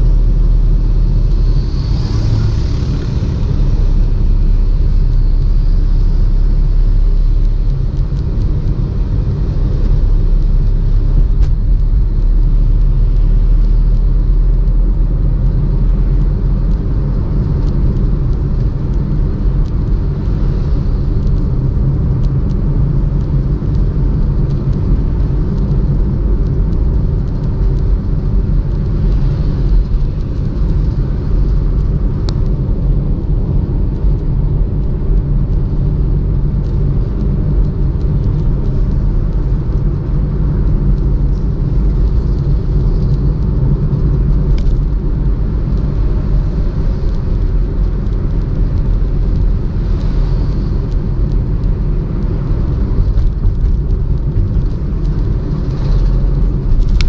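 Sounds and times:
car driving on paved road: 0:00.0 - 0:57.0.

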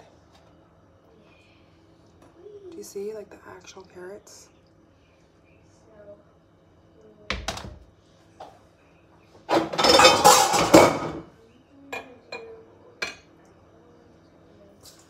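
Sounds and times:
utensils scraping clatter: 0:09.5 - 0:11.1
glass jars clinking: 0:09.7 - 0:11.2.

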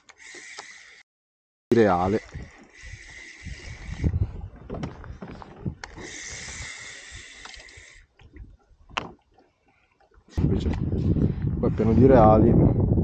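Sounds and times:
knocks and thumps on kayak: 0:04.5 - 0:05.8.

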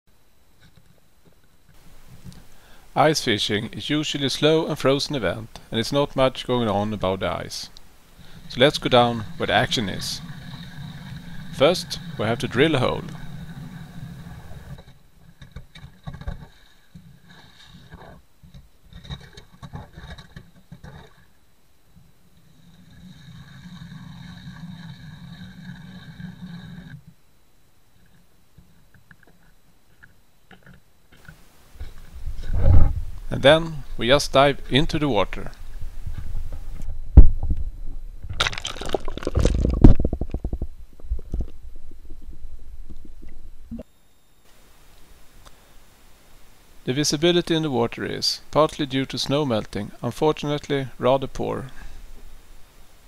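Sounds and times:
underwater bubbling: 0:08.1 - 0:15.0, 0:38.3 - 0:43.8
water splashing: 0:08.2 - 0:14.8, 0:38.3 - 0:43.8
ice cracking: 0:38.3 - 0:40.5
ice auger crunching through ice: 0:38.4 - 0:40.0.

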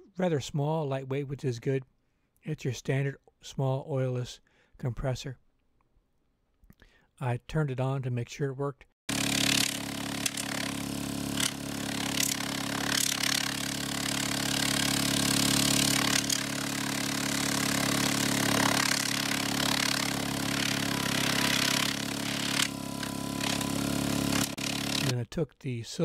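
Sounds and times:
air compressor humming: 0:09.1 - 0:25.1.

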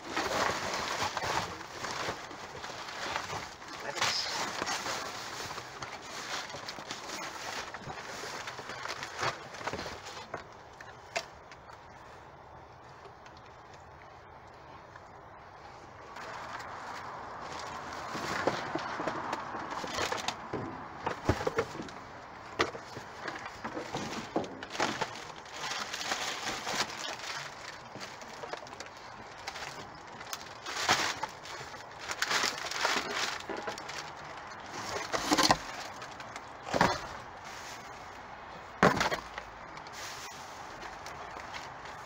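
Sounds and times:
cardboard and plastic rustling: 0:00.0 - 0:42.0
sharp knocks and crackles: 0:16.1 - 0:37.4, 0:38.7 - 0:39.9.

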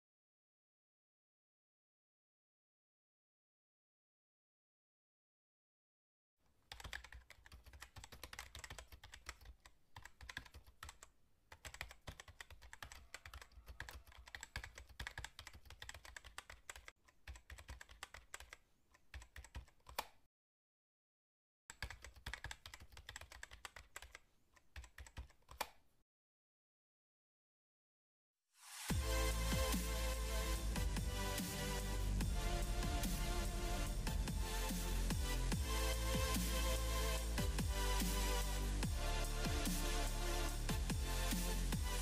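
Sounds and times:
rapid keyboard typing: 0:06.7 - 0:20.1, 0:21.7 - 0:25.8.

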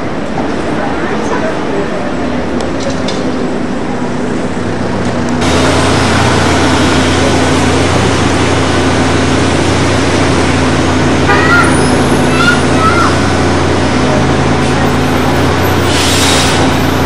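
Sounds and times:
cars passing: 0:00.0 - 0:17.0
trolleybuses moving: 0:00.0 - 0:17.0
short high squeaks: 0:14.9 - 0:17.0.

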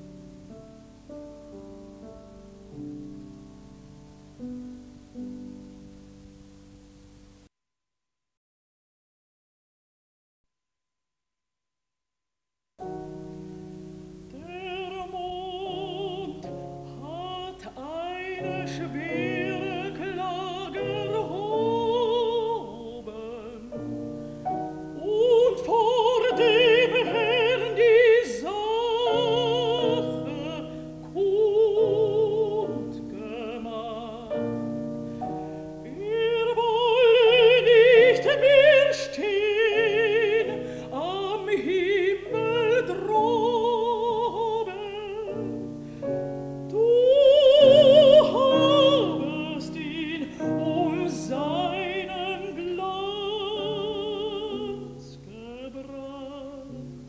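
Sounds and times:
piano accompaniment: 0:00.0 - 0:07.5, 0:12.8 - 0:57.0
woman singing with vibrato: 0:14.2 - 0:24.0, 0:24.8 - 0:34.7, 0:35.7 - 0:45.7, 0:46.7 - 0:57.0.

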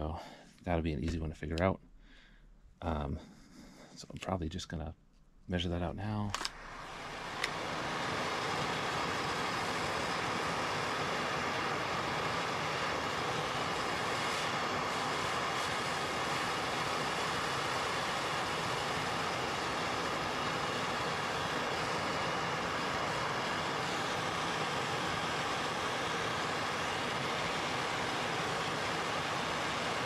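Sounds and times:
torch flame hissing: 0:06.1 - 0:30.0.

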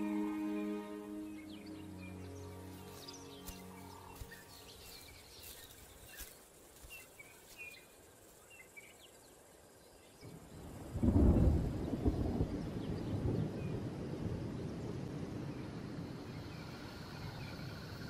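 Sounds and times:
distant thunder rumble: 0:10.3 - 0:18.0.

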